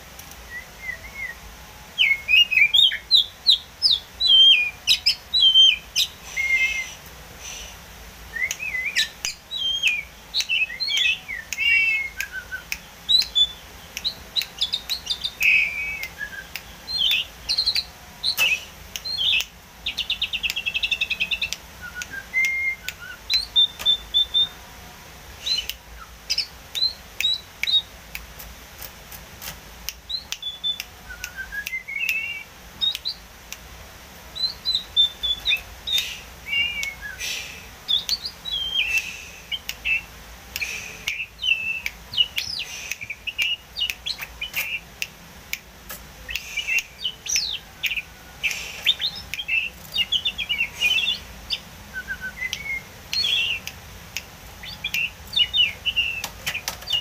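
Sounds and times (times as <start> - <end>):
bird singing whistled phrases: 0.5 - 1.4, 2.0 - 7.0, 8.3 - 24.6, 30.1 - 33.2, 34.4 - 39.1, 39.8 - 44.8, 46.3 - 53.6, 54.6 - 57.0.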